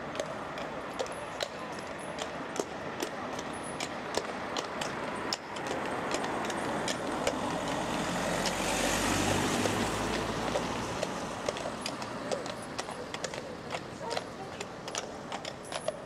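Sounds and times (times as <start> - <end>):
horses' hooves clip-clopping: 0.0 - 16.0
car driving past: 5.9 - 12.9.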